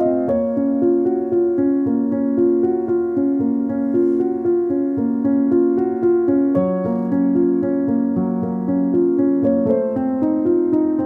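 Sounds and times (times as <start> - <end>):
calm piano-like keyboard music: 0.0 - 11.0.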